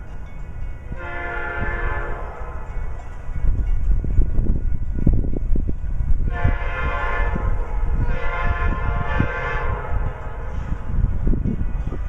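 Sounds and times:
locomotive air horn blasts: 0.9 - 2.7, 6.2 - 10.9.

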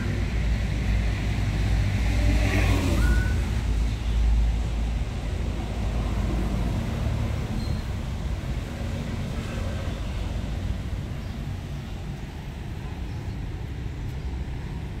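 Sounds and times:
low rumble of outdoor background: 0.0 - 15.0.

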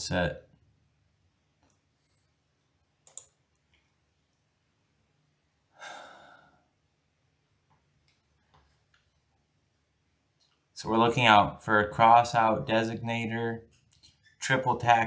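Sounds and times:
mouse clicks: 3.0 - 3.9
person exhaling: 5.7 - 6.7.

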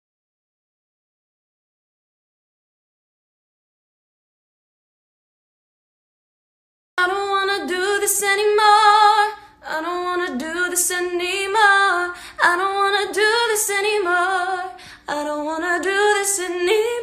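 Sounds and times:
woman singing unaccompanied: 7.0 - 17.0.

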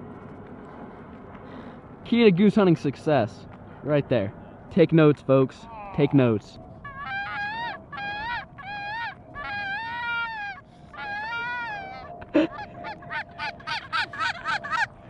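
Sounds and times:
goose clucking: 6.8 - 15.0
goose honking: 6.9 - 14.9.

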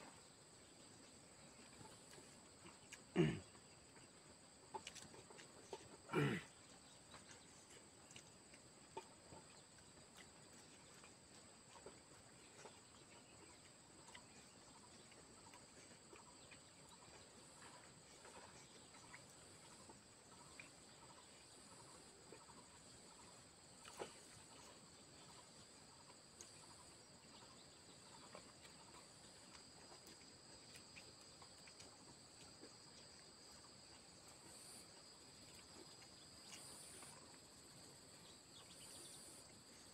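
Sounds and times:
crickets chirping: 0.0 - 39.9
faint ticks: 26.1 - 26.8, 28.1 - 34.8, 35.4 - 37.5.

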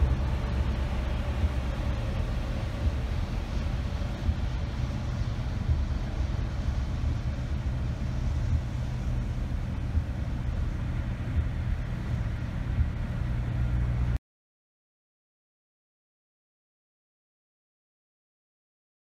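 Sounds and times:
tyre noise on wet road: 0.0 - 14.2
vehicle engine drone: 0.0 - 14.2.

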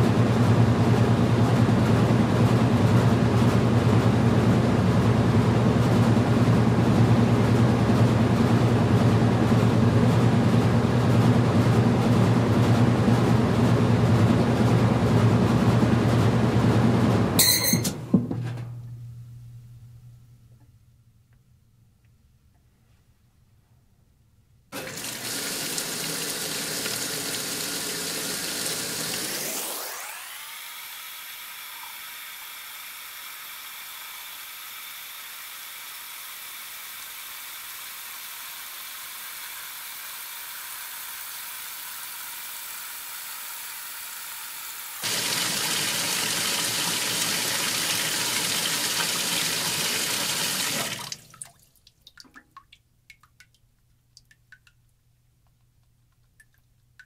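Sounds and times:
water filling washer tub: 24.7 - 53.6
water drips: 50.9 - 57.0.

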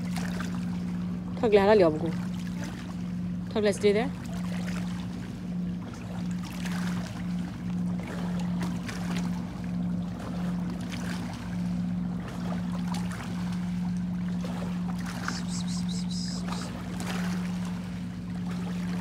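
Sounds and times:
boat motor humming: 0.0 - 19.0
faint high-pitched chirps: 15.3 - 16.7.

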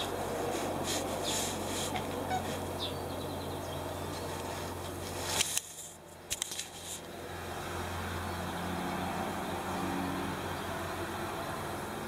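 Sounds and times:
sharp clicks: 5.4 - 7.1.

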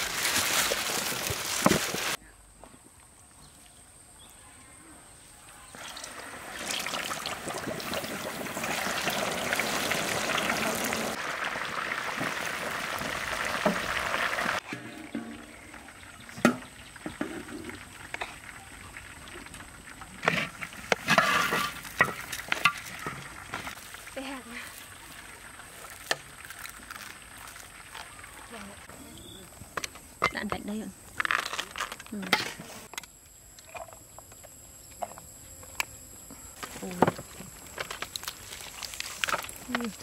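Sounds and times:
hot oil sizzling: 5.8 - 28.8.

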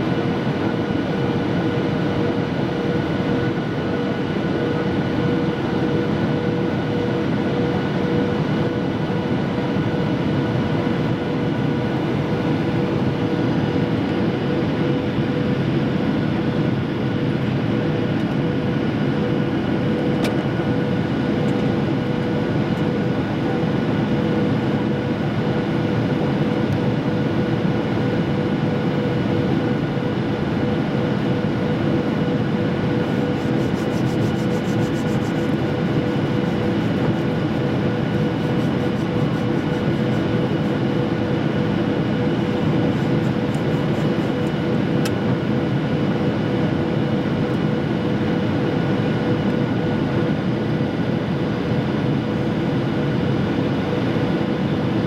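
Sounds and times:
jet engines and airflow rushing: 0.0 - 55.0
steady whining tones: 27.8 - 45.8.

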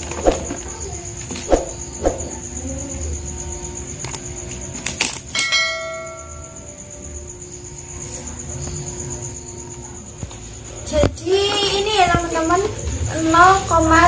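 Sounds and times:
bell ding: 5.4 - 6.6.

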